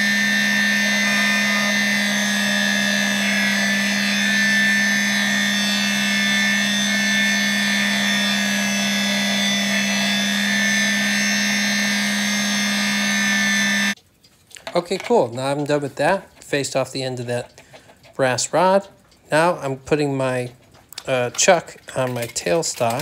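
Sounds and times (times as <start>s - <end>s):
lathe cutting brass: 0.0s - 14.0s, 14.9s - 23.0s
lathe motor humming and whining: 0.0s - 14.0s.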